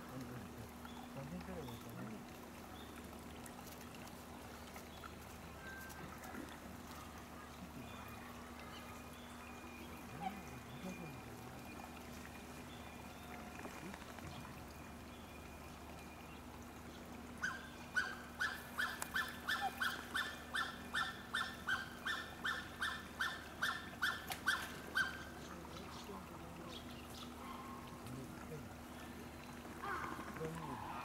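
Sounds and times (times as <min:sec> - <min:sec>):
animal making sharp calls: 0:17.4 - 0:25.3.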